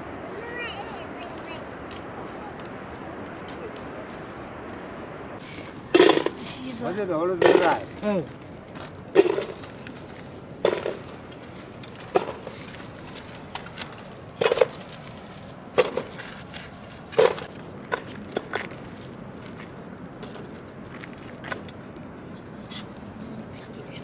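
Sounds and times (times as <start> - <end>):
maize cobs dropping into metal pot: 5.4 - 8.3, 9.1 - 12.5, 13.5 - 16.3.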